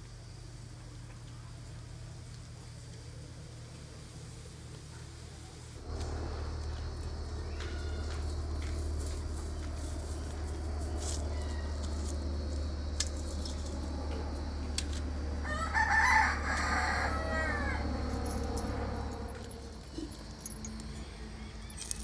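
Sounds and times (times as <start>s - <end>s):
steady low hum: 0.0s - 22.0s
rooster crowing: 5.9s - 9.0s, 10.8s - 12.5s, 15.2s - 19.4s, 20.9s - 22.0s.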